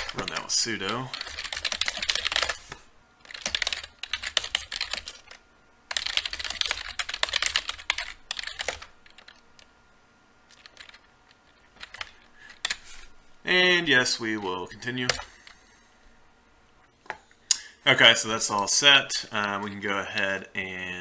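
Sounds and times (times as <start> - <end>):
computer keyboard typing: 0.0 - 2.6, 3.2 - 9.7, 10.5 - 12.8.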